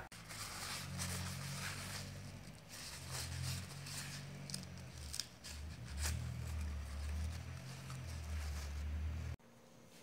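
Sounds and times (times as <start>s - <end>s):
paper towel rustling: 0.1s - 9.4s.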